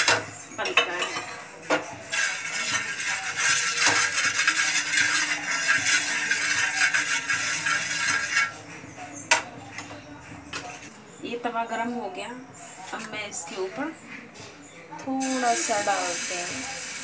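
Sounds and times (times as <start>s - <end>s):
water sizzling on a hot griddle: 2.1s - 8.5s, 15.2s - 17.0s.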